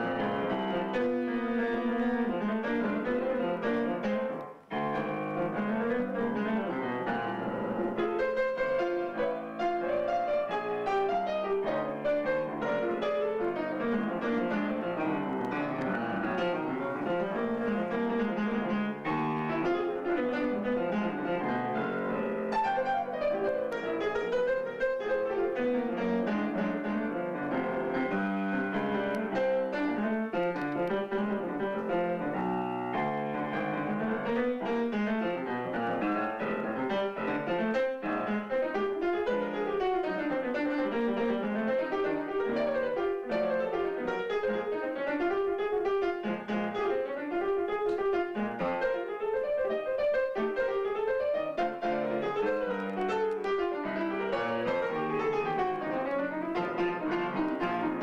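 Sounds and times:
solo blues piano: 0.0s - 58.0s.

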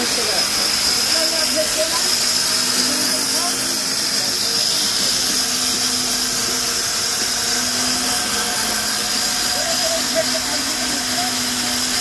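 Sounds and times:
sawmill saw whining: 0.0s - 12.0s.

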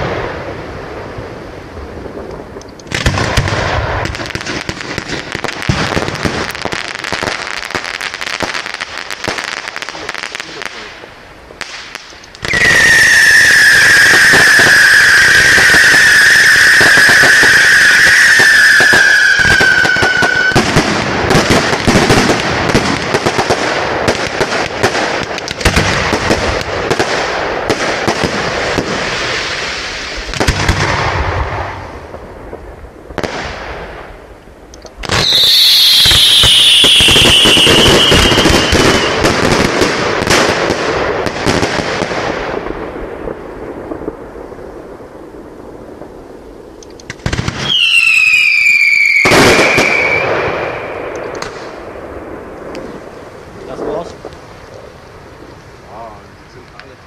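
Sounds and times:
firework crackling: 0.0s - 57.0s
firework whistle: 11.6s - 22.9s, 35.0s - 40.6s, 47.3s - 51.8s.

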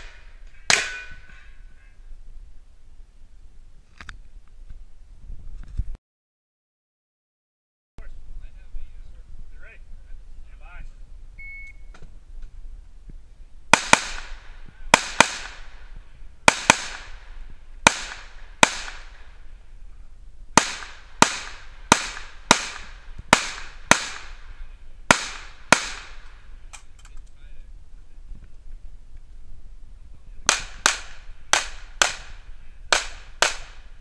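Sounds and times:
handgun shots with echo: 20.6s - 24.4s, 25.1s - 26.3s, 30.5s - 33.8s.

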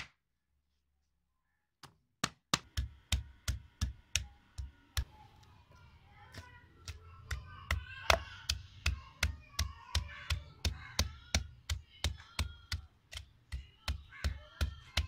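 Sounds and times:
pestle pounding in a mortar: 2.6s - 5.1s, 6.3s - 15.0s.

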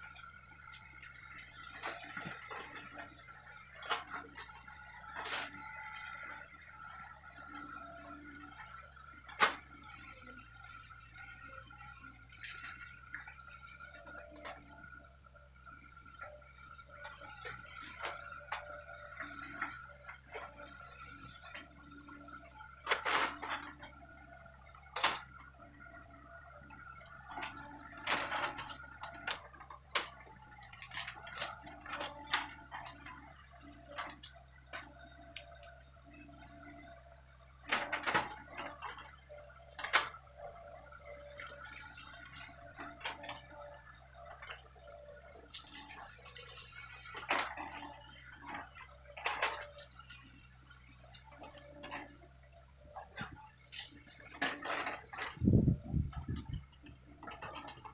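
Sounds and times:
distant excavator engine droning: 0.0s - 57.9s.

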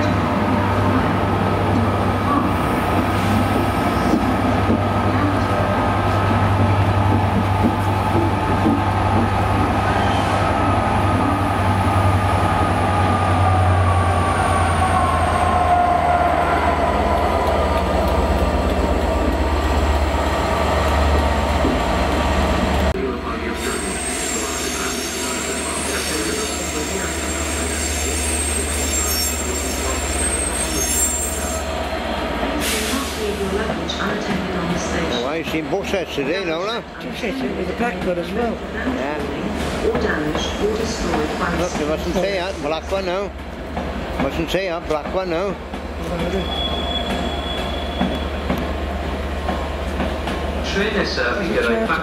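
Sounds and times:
diesel locomotive rumbling: 0.0s - 52.0s
steel wheels squealing on rails: 9.8s - 10.8s, 23.5s - 31.8s, 46.0s - 48.7s.

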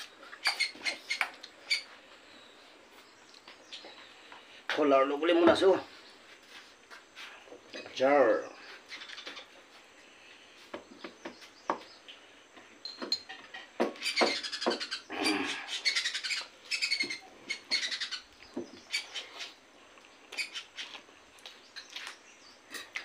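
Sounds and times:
wet mouth clicks and chewing: 19.9s - 23.0s.

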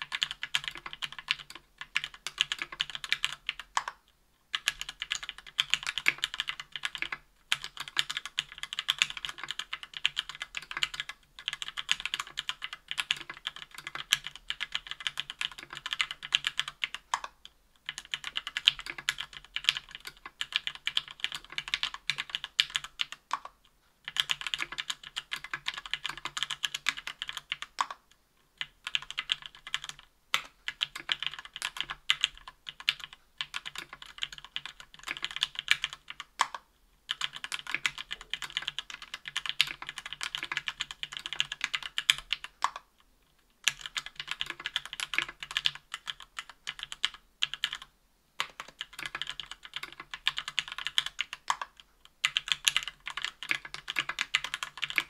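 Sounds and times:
mechanical keyboard typing: 0.0s - 28.0s, 28.6s - 42.9s, 43.6s - 55.0s.

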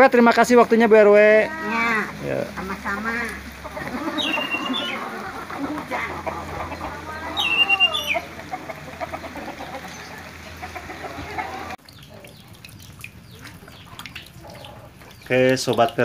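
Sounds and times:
chicken calling: 1.4s - 12.4s.

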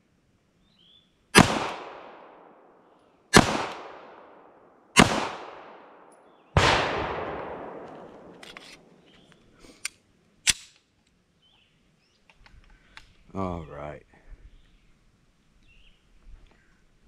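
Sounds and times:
pistol shots with echo: 1.4s - 2.7s, 3.3s - 8.4s
faint clicks: 12.2s - 13.2s.

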